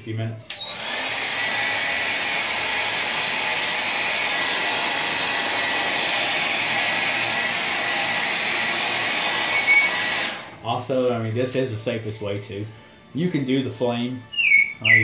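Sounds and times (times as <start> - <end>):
hair dryer blowing: 0.5 - 10.6.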